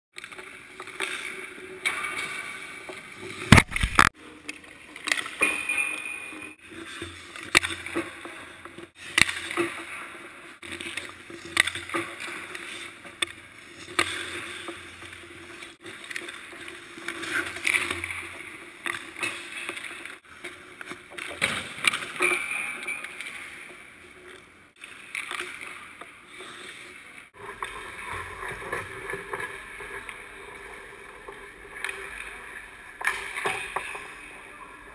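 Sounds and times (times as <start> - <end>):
skate blades scraping ice: 6.7 - 20.5.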